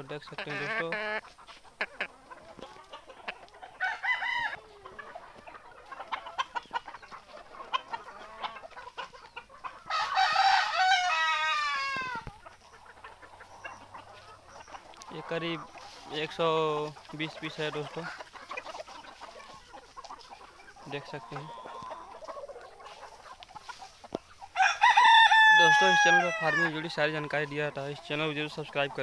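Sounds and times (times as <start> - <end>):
chickens clucking: 0.0 - 29.0
rooster crowing: 3.7 - 4.7, 9.9 - 12.3, 24.6 - 26.8.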